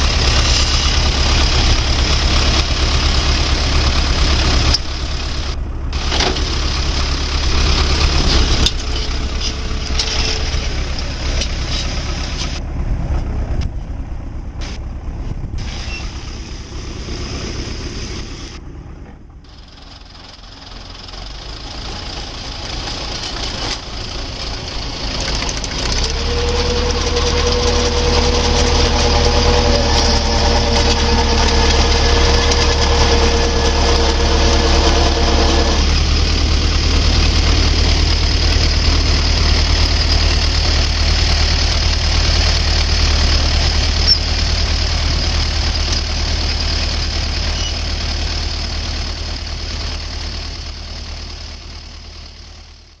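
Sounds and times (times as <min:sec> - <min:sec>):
steady whining tone: 0:00.0 - 0:12.6, 0:22.5 - 0:46.7
tractor engine running: 0:00.0 - 0:53.0
auger boring into soil: 0:25.1 - 0:36.0.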